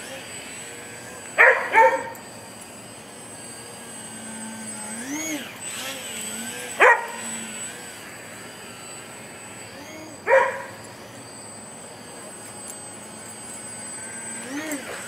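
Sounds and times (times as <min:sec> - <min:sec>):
electric model plane motor whine: 0:00.0 - 0:15.0
dog barking: 0:01.4 - 0:02.2, 0:06.8 - 0:07.2, 0:10.3 - 0:10.7.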